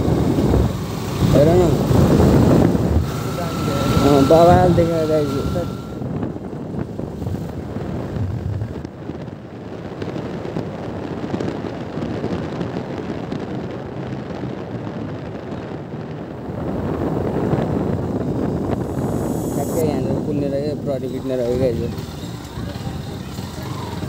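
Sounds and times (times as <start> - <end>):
motorcycle engine running: 0.0 - 9.4
wind rushing over microphone: 0.0 - 24.0.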